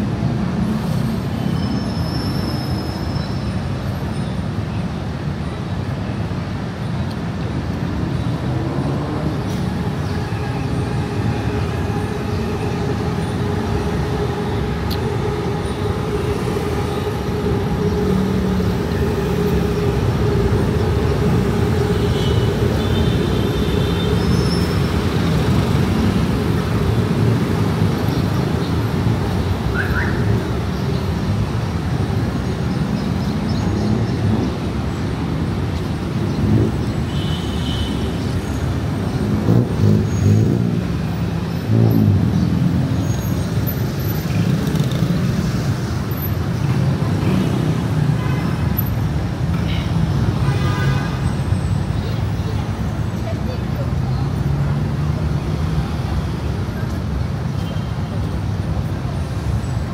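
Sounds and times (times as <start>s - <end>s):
passing cars and buses: 0.0s - 59.9s
steady engine hum: 7.5s - 50.4s.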